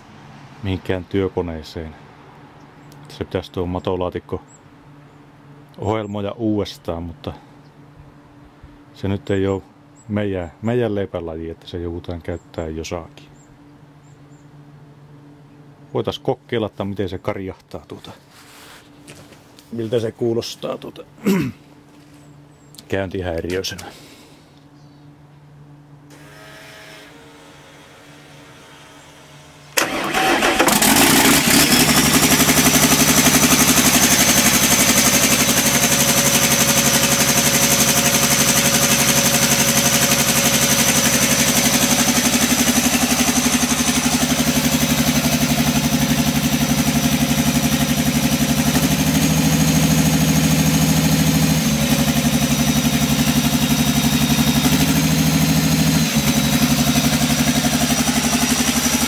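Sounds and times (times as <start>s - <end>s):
diesel generator engine running: 27.2s - 59.0s.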